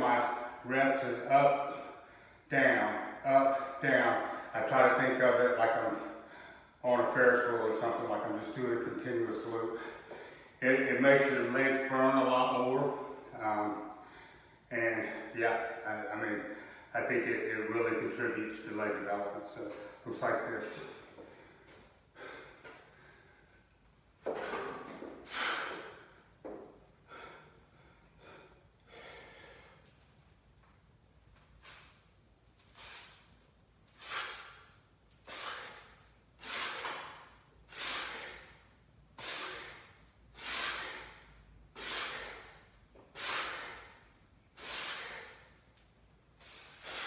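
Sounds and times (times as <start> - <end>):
man breathing hard: 5.9 - 6.8, 9.7 - 10.6, 20.8 - 23.7, 25.0 - 30.0, 33.9 - 45.7.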